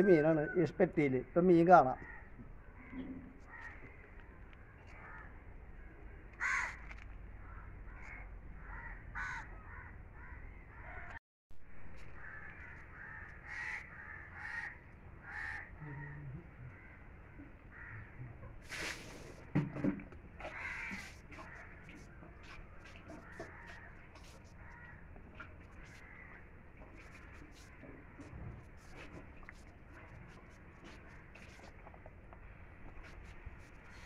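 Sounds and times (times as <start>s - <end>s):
faint outdoor background: 0.0s - 34.0s
crows cawing: 2.0s - 4.2s, 4.8s - 5.4s, 6.3s - 11.2s, 12.0s - 17.1s, 17.7s - 18.2s, 20.4s - 22.1s, 23.0s - 25.1s, 25.7s - 26.4s.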